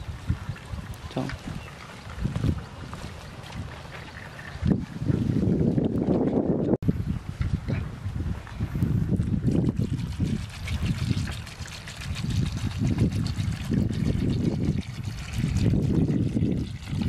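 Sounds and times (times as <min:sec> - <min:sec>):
wind rumble on microphone: 0:00.0 - 0:17.0
water pouring into pot: 0:09.6 - 0:17.0.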